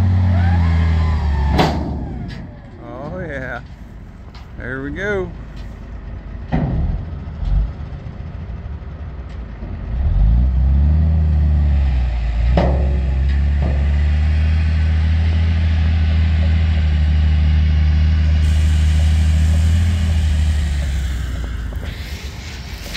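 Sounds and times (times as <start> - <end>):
diesel truck engine revving: 0.0 - 22.9.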